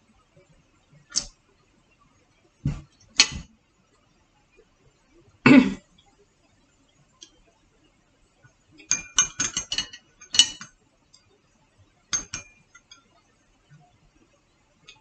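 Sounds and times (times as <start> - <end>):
chopsticks clinking on plate: 8.8 - 10.7, 12.2 - 13.1.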